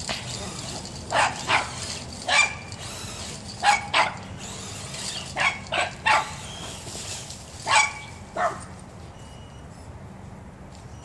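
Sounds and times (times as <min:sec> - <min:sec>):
small dog barking: 0:05.4 - 0:06.3, 0:07.7 - 0:08.7.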